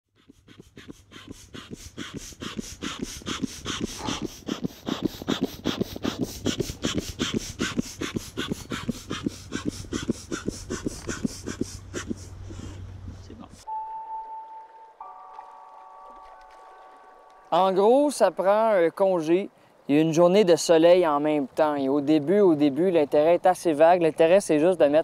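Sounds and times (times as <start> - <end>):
bellows foot pump puffing air: 0.1 - 12.8.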